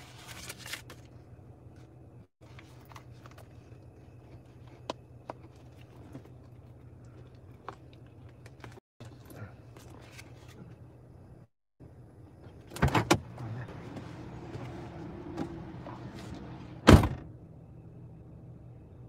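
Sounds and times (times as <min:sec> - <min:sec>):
low car hum: 0:01.0 - 0:19.0
car door slamming: 0:16.8 - 0:17.3.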